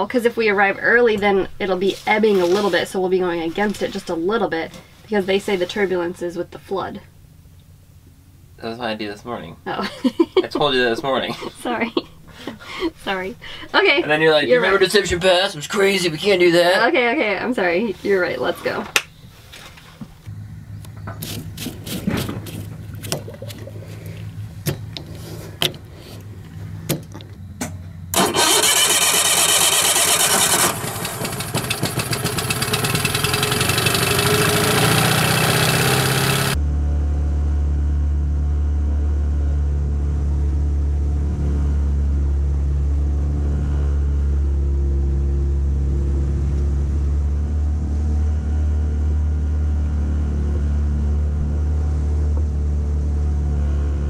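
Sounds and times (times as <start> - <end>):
outboard motor running: 28.1 - 36.6.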